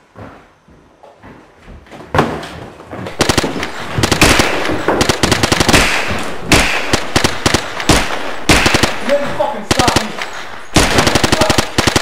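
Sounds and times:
rapid automatic gunfire: 3.2s - 12.0s.

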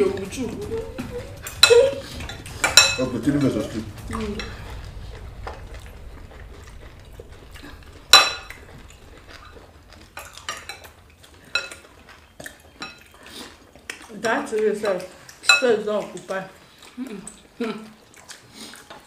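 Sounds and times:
cutlery clinking against plates: 1.4s - 3.7s, 10.2s - 16.4s.

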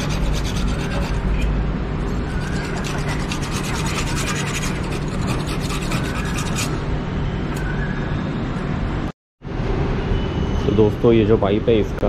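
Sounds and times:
sandpaper rubbing metal pipe: 0.0s - 1.6s, 2.2s - 6.8s.

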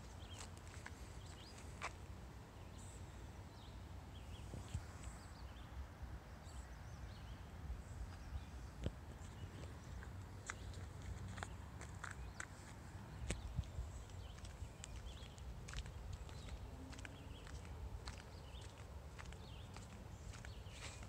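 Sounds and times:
footsteps on grass: 9.2s - 21.0s.

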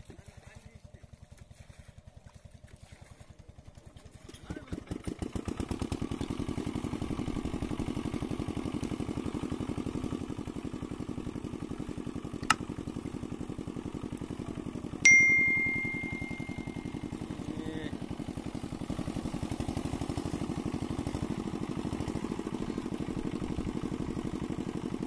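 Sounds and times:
small engine running: 0.0s - 25.0s
sharp click: 12.4s - 12.6s
bright bell ding: 15.0s - 17.2s.

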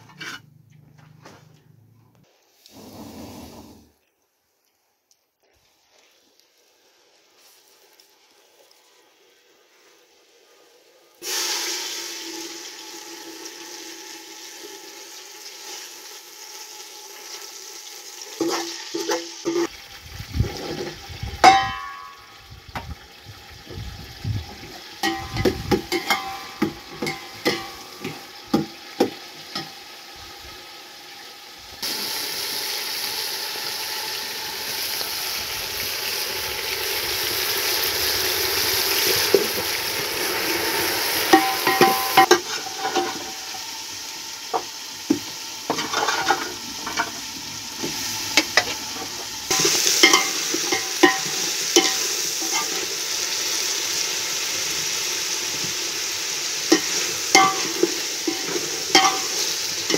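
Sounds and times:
food sizzling in hot oil: 5.4s - 59.9s
metal ladle knocking pot: 56.8s - 59.3s.

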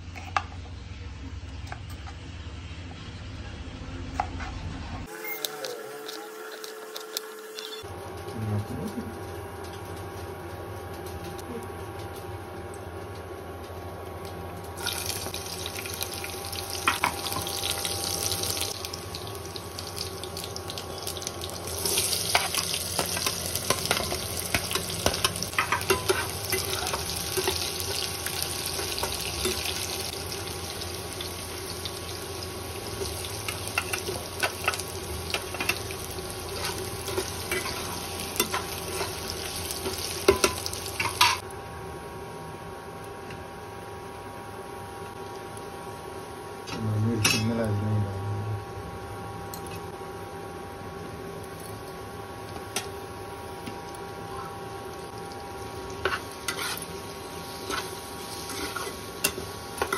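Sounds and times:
steady hum: 13.4s - 59.9s
vegetables sizzling in hot oil: 14.8s - 41.4s, 52.4s - 59.9s
metal spatula scraping: 56.0s - 56.9s, 57.6s - 59.0s.

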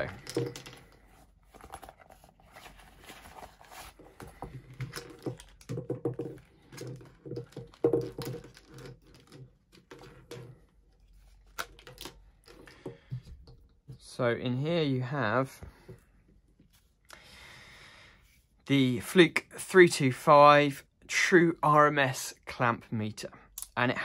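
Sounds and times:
plastic and cable rustling: 0.0s - 14.1s.

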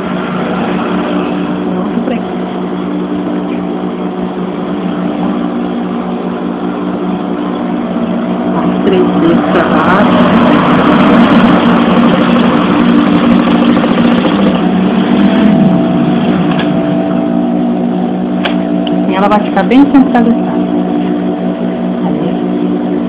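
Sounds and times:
sewing machine motor humming: 0.0s - 17.2s
sewing machine rapid ticking: 9.6s - 15.4s.

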